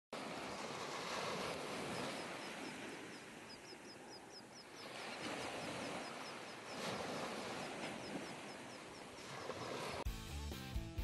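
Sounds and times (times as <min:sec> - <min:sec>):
surf washing over sand: 0:00.2 - 0:10.1.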